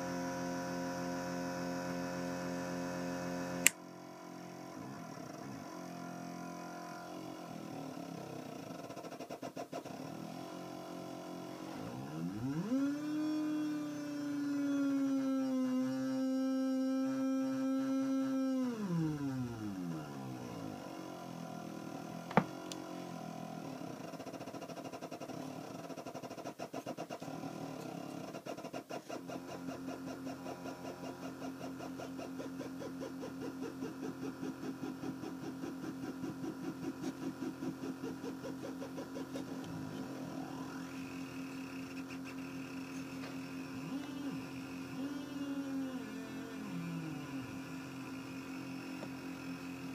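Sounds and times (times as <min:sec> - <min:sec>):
buzzy electronic drone: 0:10.7 - 0:23.7, 0:29.4 - 0:49.9.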